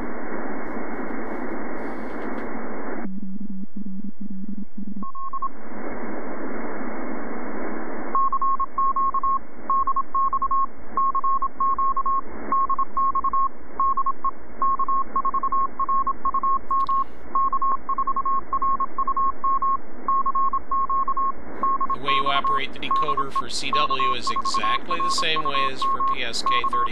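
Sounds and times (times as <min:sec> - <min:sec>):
radio receiver hiss: 0:00.0 - 0:03.0, 0:21.4 - 0:26.9
morse code tone: 0:08.2 - 0:26.9.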